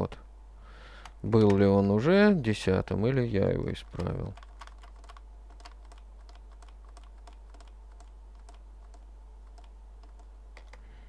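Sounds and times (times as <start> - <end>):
steady low hum: 0.0 - 11.0
keyboard typing: 3.8 - 10.8.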